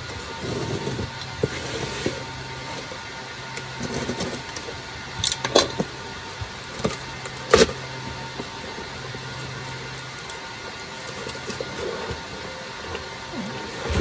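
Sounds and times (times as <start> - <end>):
cardboard scraping and rustling: 0.0 - 3.0, 3.6 - 4.6, 5.8 - 14.0
steady low hum: 0.0 - 14.0
cardboard crackles: 6.4 - 14.0.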